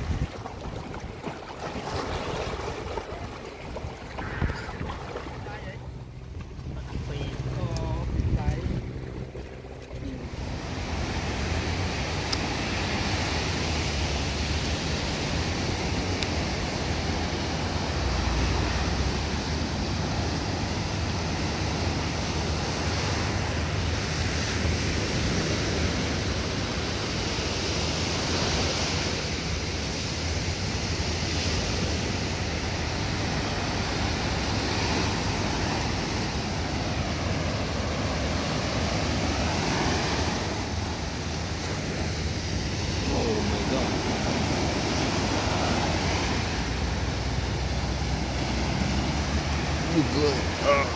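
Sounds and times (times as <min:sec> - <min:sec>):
wind on microphone: 0:00.0 - 0:05.8, 0:06.4 - 0:16.2
surf breaking on beach: 0:00.0 - 0:06.0, 0:06.6 - 0:50.9.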